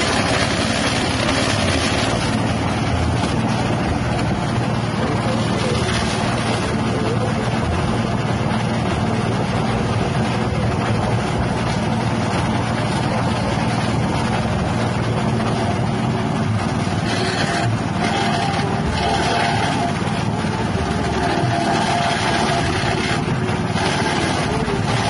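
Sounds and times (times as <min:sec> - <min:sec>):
petrol engine running: 0:00.0 - 0:25.0.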